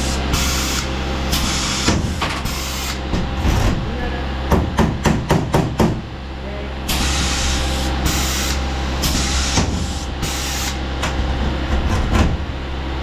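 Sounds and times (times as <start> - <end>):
pneumatic tool air hiss: 0.0 - 3.0, 6.9 - 10.8
steady low hum: 0.0 - 13.0.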